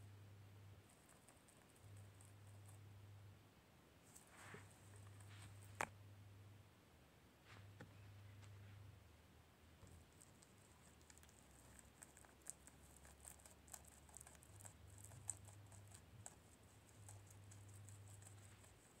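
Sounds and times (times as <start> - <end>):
guinea pig chewing leaf: 0.8 - 2.8, 9.9 - 19.0.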